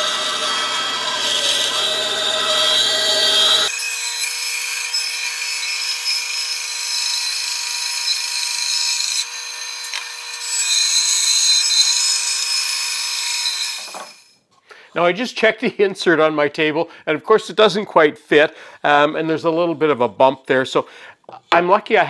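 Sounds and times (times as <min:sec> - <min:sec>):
bandsaw cutting wood: 0:00.0 - 0:14.2.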